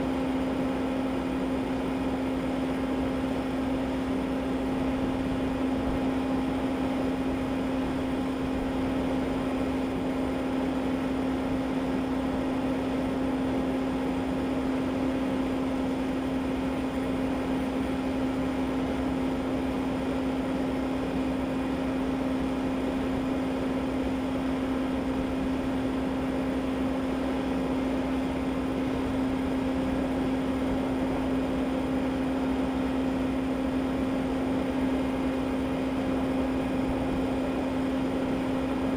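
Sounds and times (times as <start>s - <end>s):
mechanical hum: 0.0s - 38.9s.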